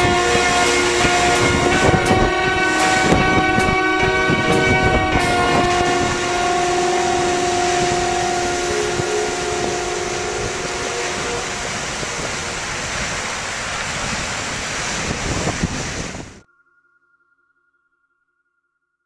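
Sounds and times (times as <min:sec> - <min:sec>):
held music chord: 0:00.0 - 0:13.8
surf breaking on pebble beach: 0:00.0 - 0:16.4.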